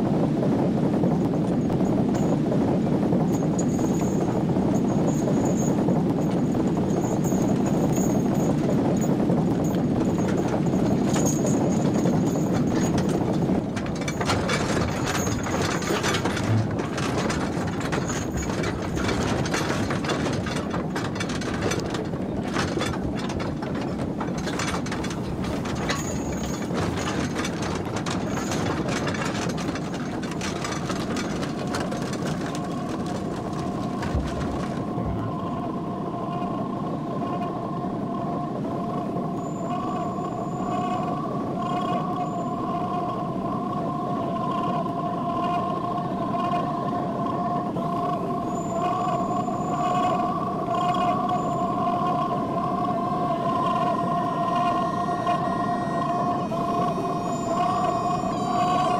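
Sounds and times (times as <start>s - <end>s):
low rumble of rolling cart: 0.0s - 58.9s
cart clicking and knocking: 3.2s - 35.8s
steady high tones: 39.2s - 58.9s.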